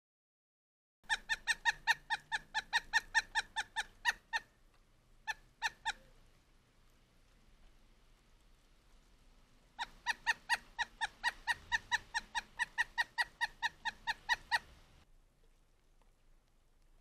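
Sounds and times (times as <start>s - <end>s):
woodpecker calling: 1.1s - 4.5s, 5.2s - 6.2s, 9.8s - 14.9s.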